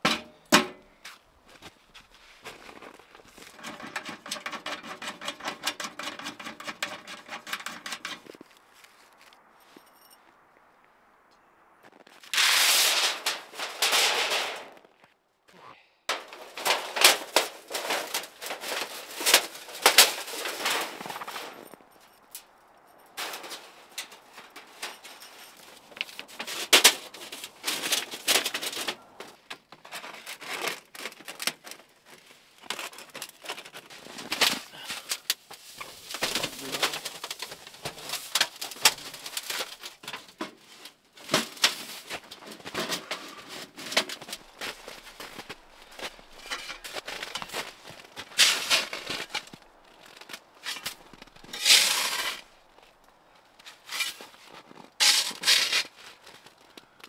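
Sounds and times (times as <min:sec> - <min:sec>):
wood and gear handled on snow: 0:00.0 - 0:10.5, 0:11.8 - 0:57.0.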